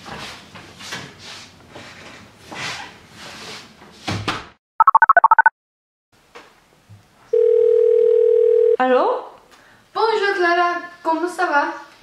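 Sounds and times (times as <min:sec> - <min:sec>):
phone keypad beeps: 0:04.8 - 0:05.5.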